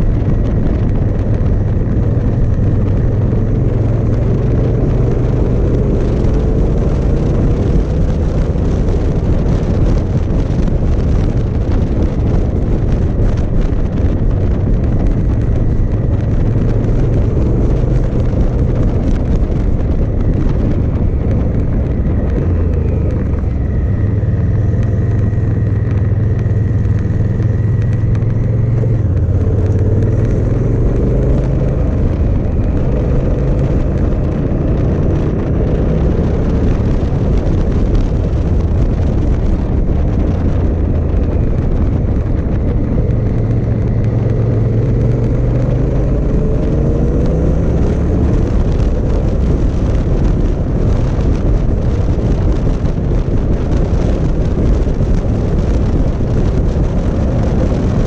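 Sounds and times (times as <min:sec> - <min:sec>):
motorcycle engine running: 0:00.0 - 0:58.0
wind rush on microphone: 0:00.0 - 0:58.0.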